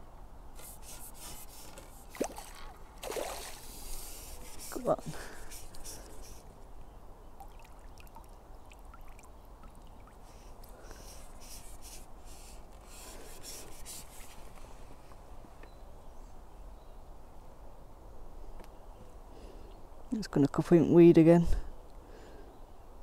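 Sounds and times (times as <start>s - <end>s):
small water splashes and drips: 2.1s - 3.7s, 7.3s - 10.8s.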